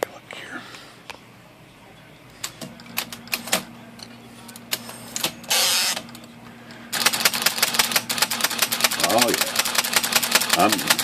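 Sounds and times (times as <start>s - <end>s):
typewriter motor humming: 5.2s - 6.2s, 6.9s - 11.0s
typewriter mechanism clicks: 7.0s - 11.0s.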